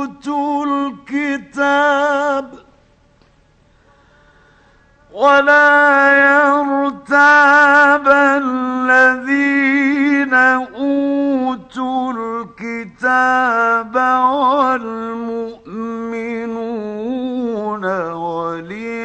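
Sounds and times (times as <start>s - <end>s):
man chanting a recitation: 0.0s - 2.6s, 5.1s - 19.0s.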